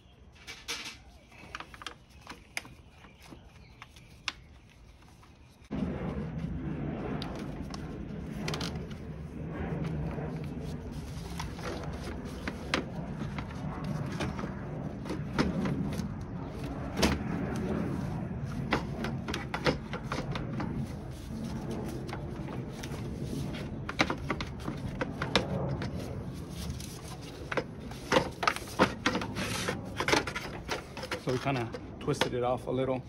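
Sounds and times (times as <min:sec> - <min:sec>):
low hum: 0:00.0 - 0:33.0
hard plastic knocking and scraping: 0:22.1 - 0:26.0.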